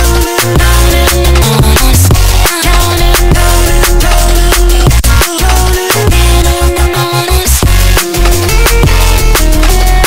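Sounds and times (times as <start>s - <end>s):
steady drum beat: 0.0s - 6.6s, 7.5s - 10.0s
deep bass line: 0.0s - 10.0s.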